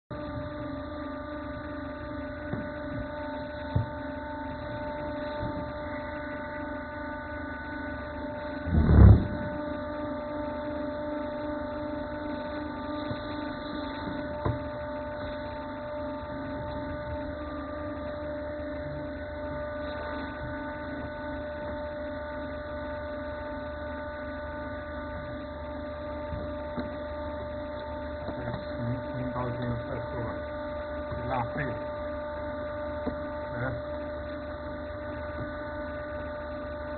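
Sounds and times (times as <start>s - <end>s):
pump motor humming: 0.1s - 36.9s
loud thump: 8.7s - 9.6s.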